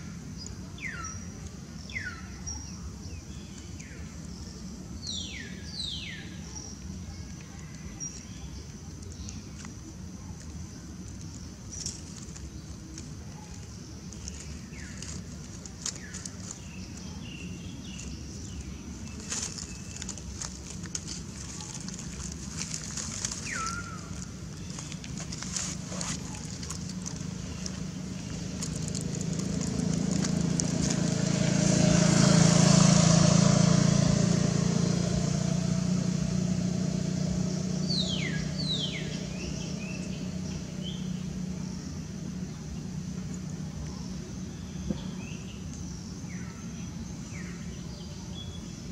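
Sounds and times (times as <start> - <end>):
light clicks and rustles: 7.2 - 31.3
vehicle passing by: 14.0 - 47.8.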